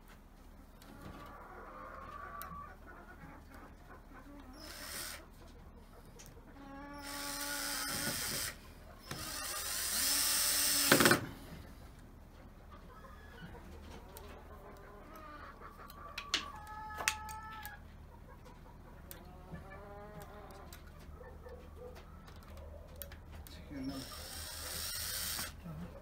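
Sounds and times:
chicken calling: 0.8s - 10.0s, 12.5s - 24.8s
cordless drill driving screws: 4.6s - 5.2s, 7.0s - 11.4s, 23.9s - 25.6s.

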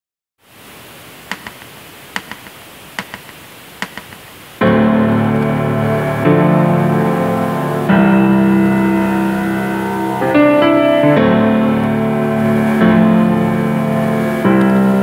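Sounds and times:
low hiss: 0.4s - 15.0s
soft clicks on a beat: 1.3s - 4.2s
loud held chords: 4.6s - 15.0s.

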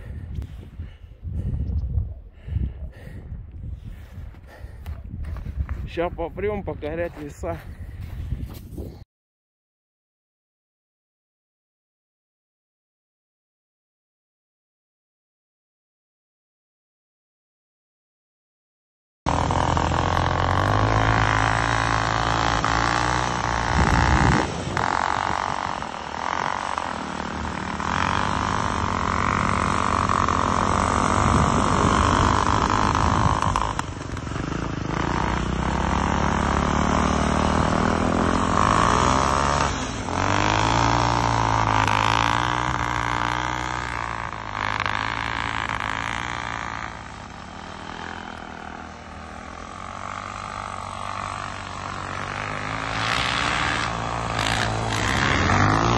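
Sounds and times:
snow bike engines revving: 3.8s - 8.1s, 19.3s - 55.9s.

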